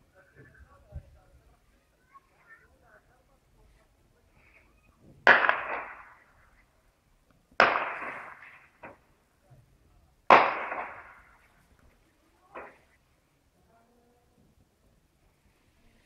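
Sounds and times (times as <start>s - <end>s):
loud gunshots with echo: 5.2s - 6.3s, 7.6s - 8.8s, 10.3s - 11.4s.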